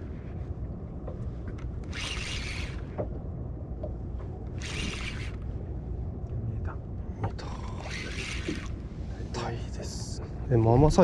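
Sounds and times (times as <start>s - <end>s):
steady low rumble: 0.0s - 11.0s
fishing reel giving line: 1.9s - 2.9s, 4.6s - 5.4s, 7.7s - 8.7s.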